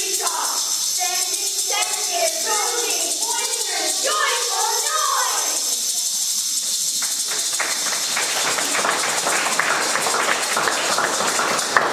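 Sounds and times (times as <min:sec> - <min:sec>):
constant high hiss: 0:00.0 - 0:11.9
audience applause: 0:07.0 - 0:11.9.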